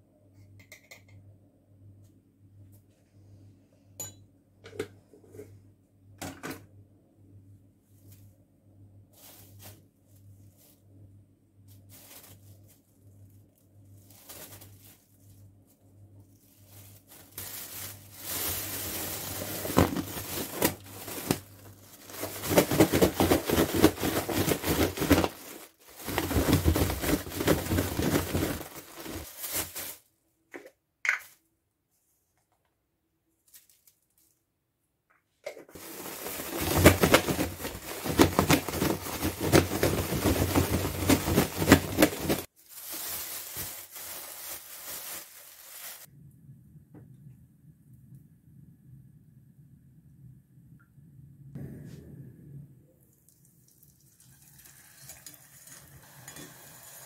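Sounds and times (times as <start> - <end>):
plastic bag rustling: 9.1 - 30.1, 35.7 - 46.1.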